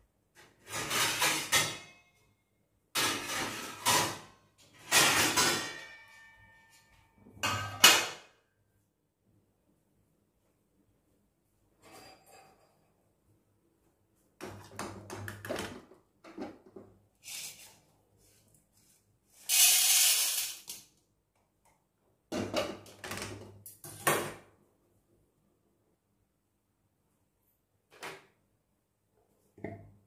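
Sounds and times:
metal pan clattering: 0:00.6 - 0:02.0, 0:03.0 - 0:06.3.

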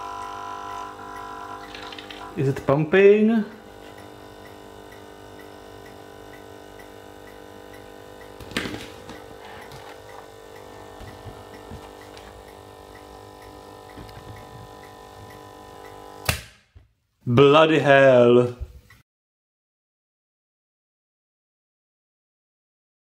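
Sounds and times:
coffee machine pump humming: 0:00.0 - 0:16.3
faint regular ticking: 0:03.5 - 0:08.4, 0:09.1 - 0:16.0.

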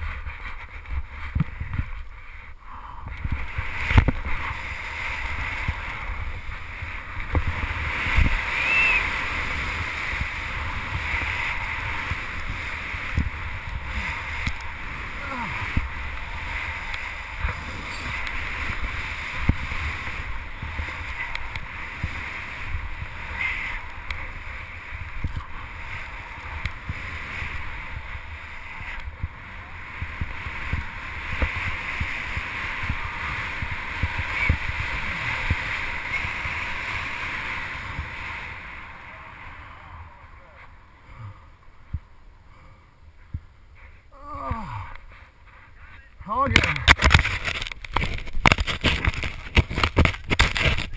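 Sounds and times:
skis hissing through powder snow: 0:00.0 - 0:02.6, 0:03.2 - 0:40.8
wind buffeting a camera: 0:00.0 - 0:41.0, 0:44.9 - 0:50.9.

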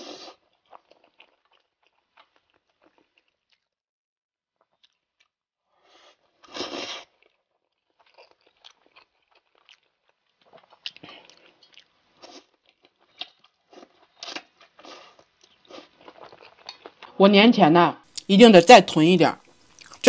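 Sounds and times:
slurping noodles: 0:00.0 - 0:00.5, 0:05.8 - 0:07.2
chewing with crunches and smacks: 0:00.0 - 0:03.8, 0:04.5 - 0:17.1, 0:19.4 - 0:20.0.

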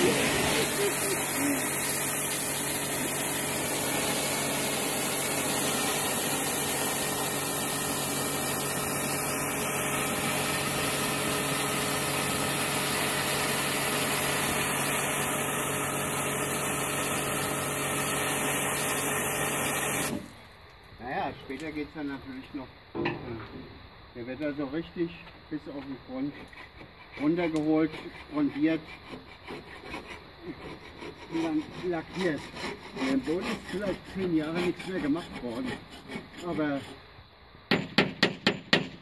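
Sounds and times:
water jet hissing on steel: 0:00.0 - 0:20.4
pressure washer pump humming: 0:00.0 - 0:20.5.

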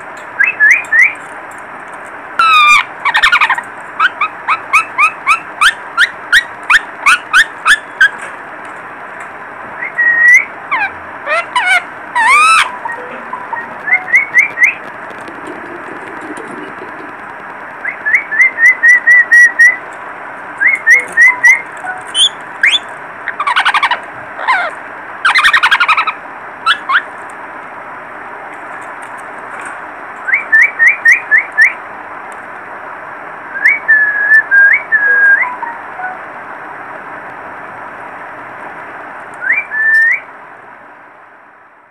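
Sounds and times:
parakeets chirping: 0:00.3 - 0:01.2, 0:02.4 - 0:08.3, 0:09.8 - 0:19.9, 0:20.6 - 0:27.2, 0:30.3 - 0:31.8
parakeet squawks: 0:02.4 - 0:08.2, 0:09.9 - 0:14.8, 0:20.6 - 0:27.1.

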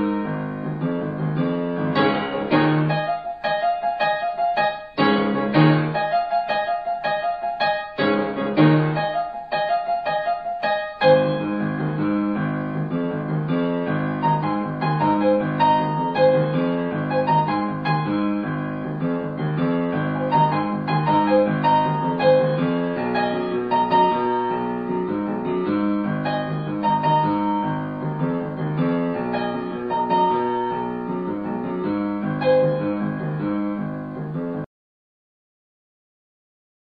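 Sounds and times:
gentle piano music: 0:00.0 - 0:34.7.

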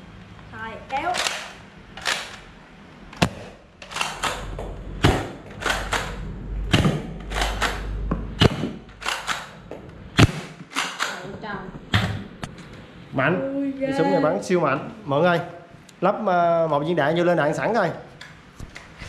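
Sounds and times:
toy pistol firing snaps: 0:09.0 - 0:09.6.

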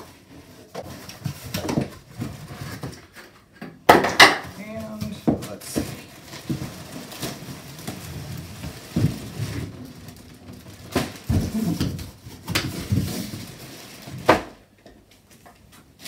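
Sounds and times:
plastic wrapping crinkling: 0:04.5 - 0:16.0.

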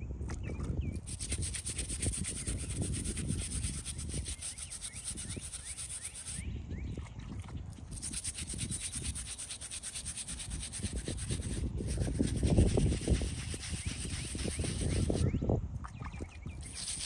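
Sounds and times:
hand brush scrubbing stone: 0:01.0 - 0:06.4, 0:07.9 - 0:15.2, 0:16.6 - 0:17.0.

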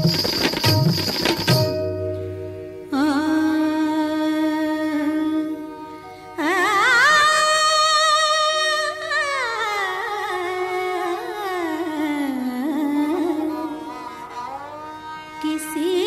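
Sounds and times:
instrumental accompaniment: 0:00.0 - 0:07.5
woman singing wordless vocalise: 0:02.9 - 0:14.0.

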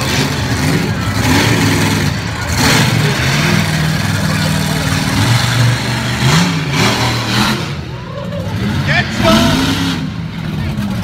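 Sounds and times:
truck engine revving hard: 0:00.0 - 0:11.0.

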